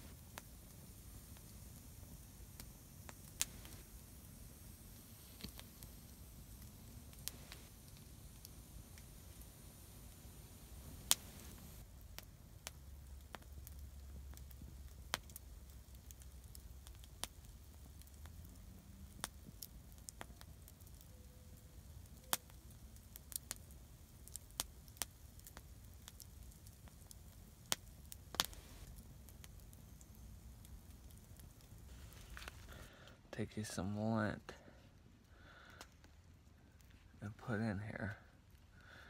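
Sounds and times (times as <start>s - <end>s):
burning wood popping: 0.0s - 39.0s
campfire crackling: 0.0s - 39.0s.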